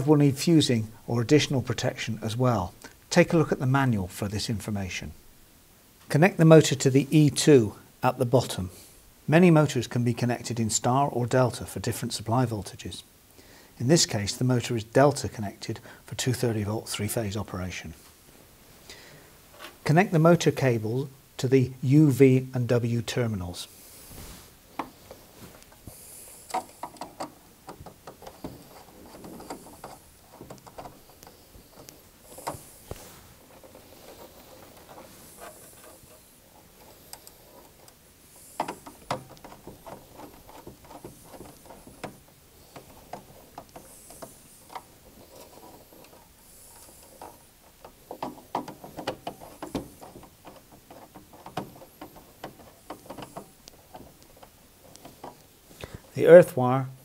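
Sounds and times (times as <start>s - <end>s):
wires being handled: 23.6s - 56.5s.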